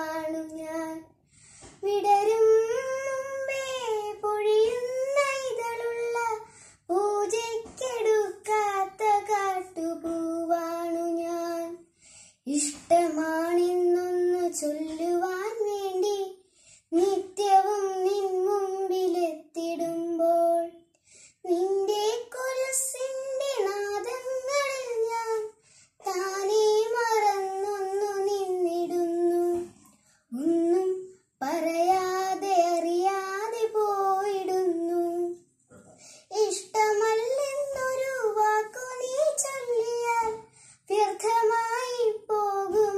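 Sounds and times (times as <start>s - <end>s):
girl singing a poem: 0.0s - 35.4s, 36.0s - 42.9s.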